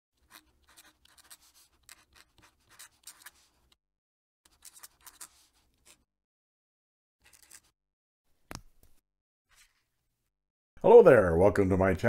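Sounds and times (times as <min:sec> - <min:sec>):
pen nib scratching on paper: 0:00.2 - 0:03.8, 0:04.5 - 0:06.1.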